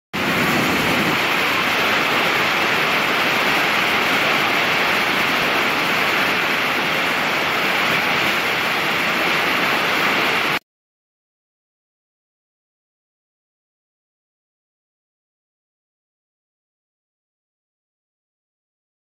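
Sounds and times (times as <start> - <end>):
waterfall rushing: 0.2 - 10.6.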